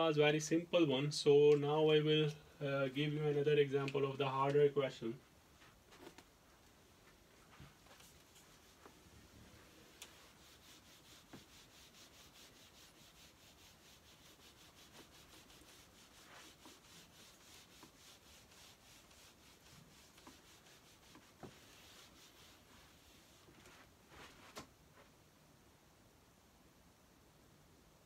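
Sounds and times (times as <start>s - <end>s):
eraser rubbing on whiteboard: 7.6s - 24.6s.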